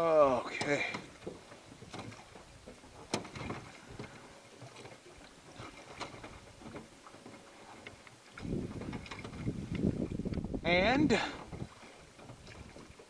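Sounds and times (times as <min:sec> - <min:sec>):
oars knocking in oarlocks: 0:00.4 - 0:10.6.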